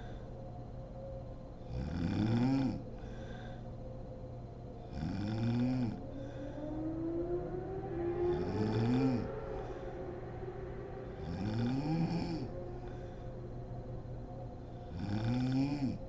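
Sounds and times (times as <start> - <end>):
woman snoring: 1.7 - 2.8, 4.9 - 6.4.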